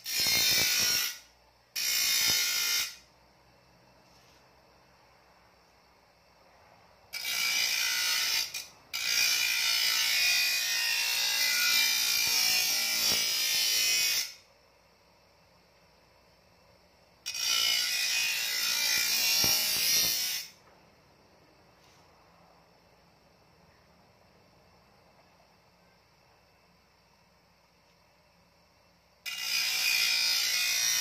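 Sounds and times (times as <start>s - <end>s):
grinding disc on steel: 17.3s - 20.6s.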